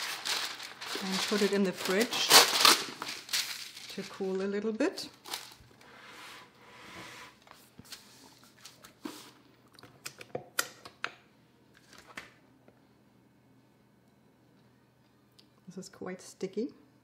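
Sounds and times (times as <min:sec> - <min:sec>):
wax paper rustling: 0:00.0 - 0:05.6.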